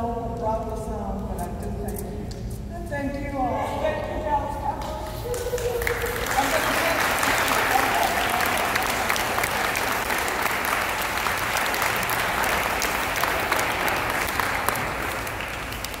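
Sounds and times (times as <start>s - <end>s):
crowd applauding: 5.3s - 16.0s.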